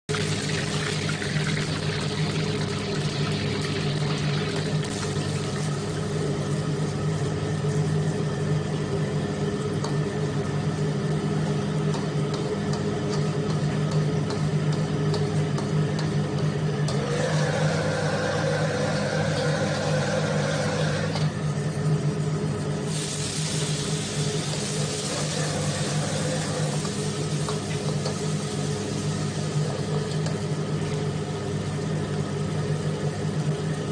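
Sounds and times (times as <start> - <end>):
stove humming: 0.1 - 33.9
egg sizzling in hot oil: 22.9 - 29.6.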